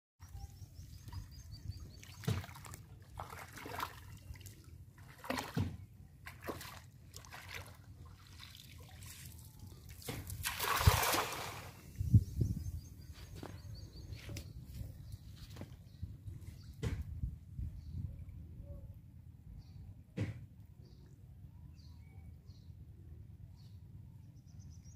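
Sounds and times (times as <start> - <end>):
water sloshing from wading: 1.0 - 12.0
cast net splashing on water: 2.0 - 11.8.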